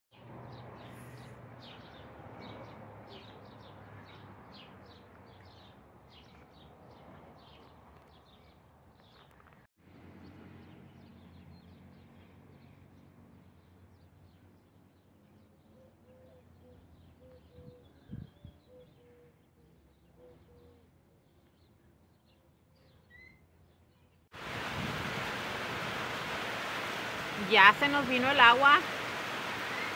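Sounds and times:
birds chirping: 25.2s - 29.9s.

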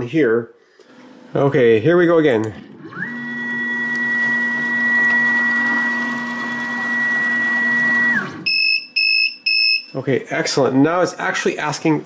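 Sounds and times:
spindle motor whining: 2.6s - 9.9s
machine beeping: 5.5s - 10.0s.

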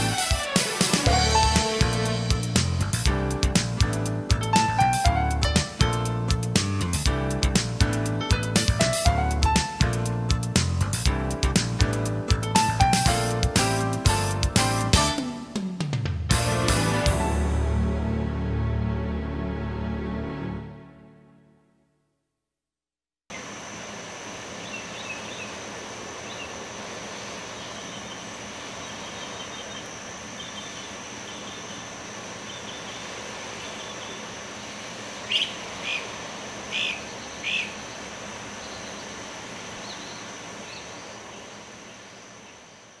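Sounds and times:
loud bird calls: 24.4s - 43.0s
small birds chirping: 24.5s - 43.0s.

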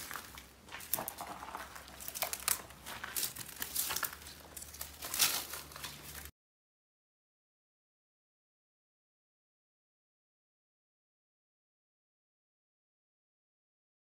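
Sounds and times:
footsteps crunching on dirt and stones: 0.0s - 6.3s.

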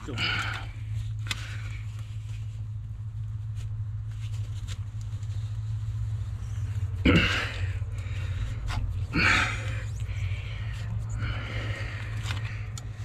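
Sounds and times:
man grunting with effort: 0.0s - 0.6s, 7.0s - 7.8s, 9.1s - 9.8s
steady low hum: 0.0s - 13.0s.

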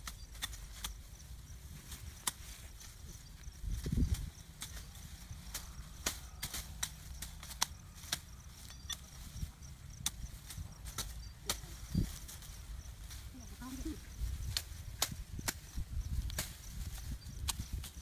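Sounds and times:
machete chopping branches: 2.1s - 2.5s, 5.5s - 8.3s, 14.4s - 16.6s.

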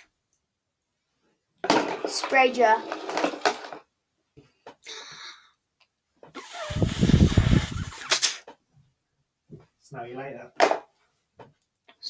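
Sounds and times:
breath blown through a pen: 6.4s - 8.4s.

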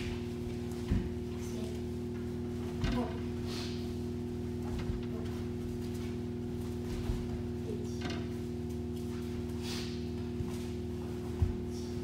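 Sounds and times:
feet thumping on mats: 0.0s - 1.4s, 2.2s - 7.6s, 8.7s - 12.0s
electrical hum: 0.0s - 12.0s.

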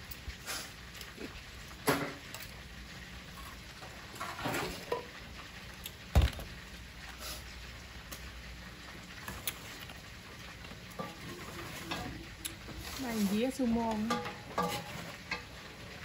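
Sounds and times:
kitchen utensils and dishes clinking: 1.8s - 2.4s, 3.4s - 5.2s, 10.8s - 16.0s.

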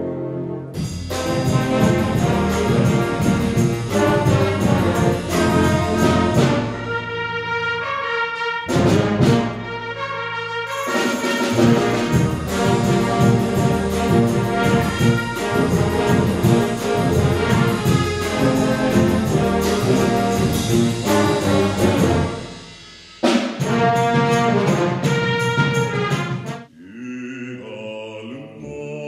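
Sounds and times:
wind orchestra playing: 0.0s - 22.8s, 23.6s - 26.7s.

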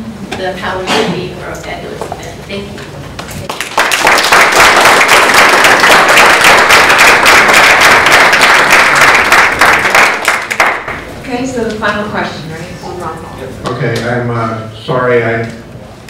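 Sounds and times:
audience applauding: 3.4s - 11.1s.

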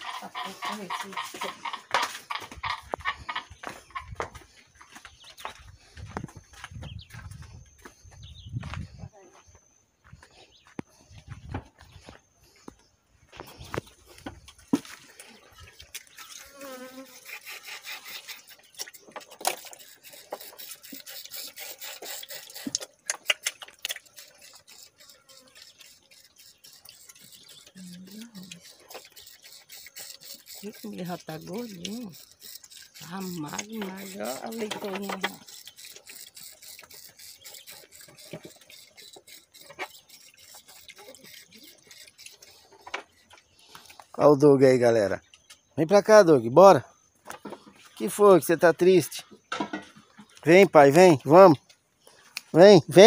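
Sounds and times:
piglets chomping and slurping: 0.0s - 4.2s, 13.6s - 44.1s
insect buzzing: 0.0s - 4.5s, 13.4s - 44.1s.

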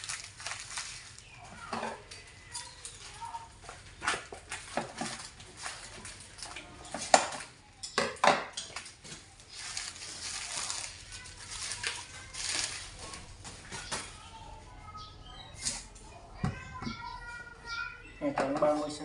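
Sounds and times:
plastic wrap crinkling: 0.0s - 7.6s, 8.7s - 14.4s.

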